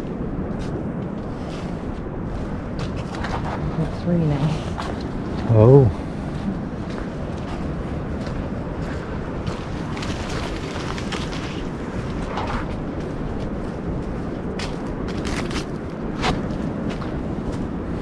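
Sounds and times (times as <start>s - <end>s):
wind rumble on microphone: 0.0s - 18.0s
footsteps crunching on trail: 6.2s - 18.0s
brush rustling: 9.4s - 12.7s.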